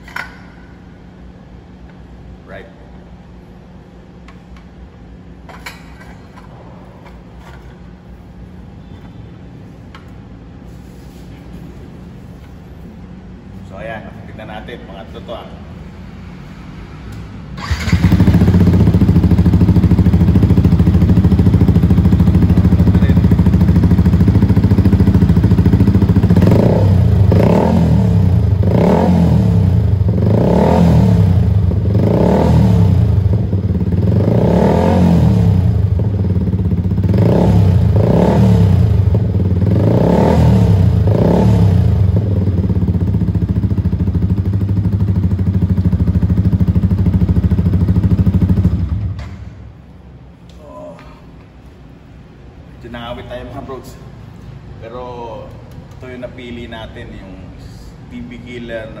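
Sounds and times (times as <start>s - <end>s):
motorcycle engine revving: 17.5s - 49.5s.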